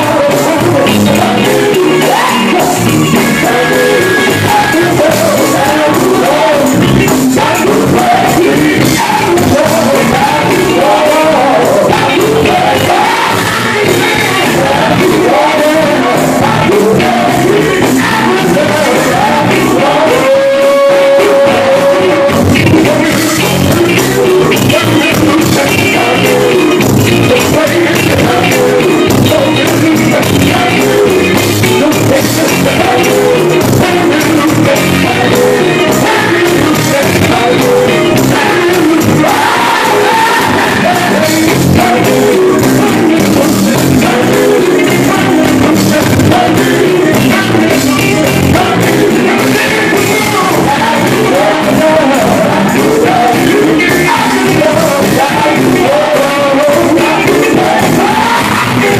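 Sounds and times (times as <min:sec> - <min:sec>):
electric guitar and keyboard band: 0:00.0 - 0:58.9
male vocal group singing gospel: 0:00.0 - 0:58.9.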